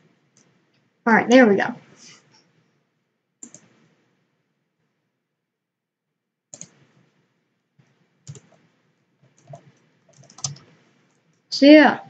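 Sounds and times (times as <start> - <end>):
computer mouse clicks: 3.4 - 3.8, 6.5 - 6.9, 8.3 - 8.7, 9.3 - 11.2.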